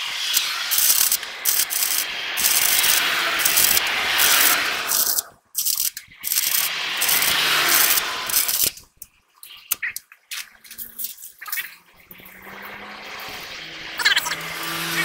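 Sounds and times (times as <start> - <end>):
electric arc welding crackle: 0.0 - 9.0.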